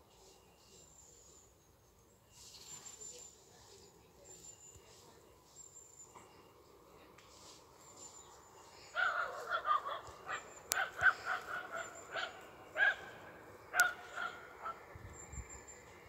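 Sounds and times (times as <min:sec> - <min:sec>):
dog barking: 0:09.0 - 0:14.8.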